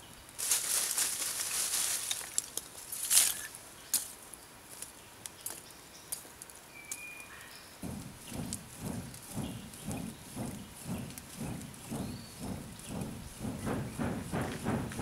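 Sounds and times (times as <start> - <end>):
charcoal clatter: 0.4 - 3.6
charcoal rustling and clinking: 0.4 - 3.6.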